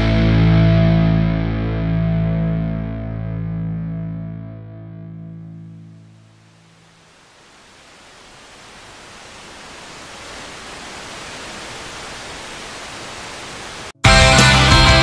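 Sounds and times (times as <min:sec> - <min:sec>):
steady hiss: 0:06.1 - 0:14.0.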